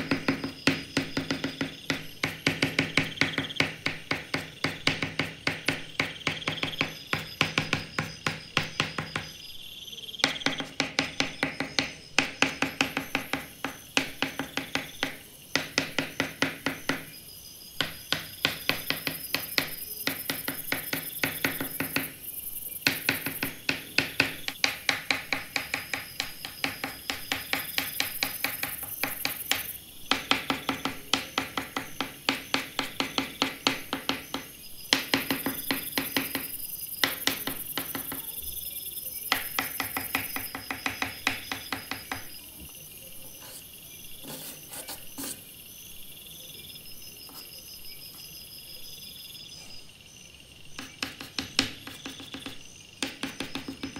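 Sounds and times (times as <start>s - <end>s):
pastel stick scratching sandpaper: 43.4s - 45.5s.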